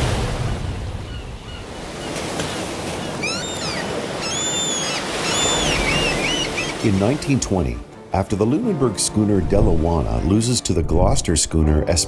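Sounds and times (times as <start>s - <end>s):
ocean surf washing: 0.0s - 11.0s
short high bird calls: 3.1s - 6.8s.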